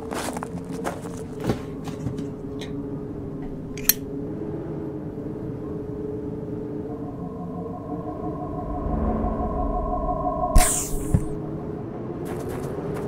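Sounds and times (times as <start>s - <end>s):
steady low hum drone: 2.2s - 12.3s
higher steady hum: 2.4s - 12.2s.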